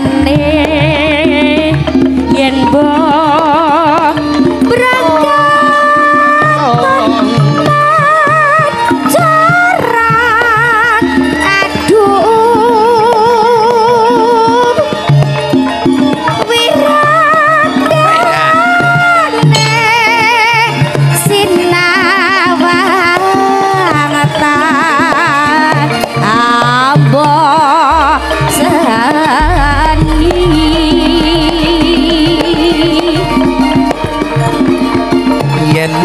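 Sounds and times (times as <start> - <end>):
hand drums beat: 0.0 - 36.0
high wavering melody: 26.4 - 36.0
deep low held note: 27.9 - 34.3.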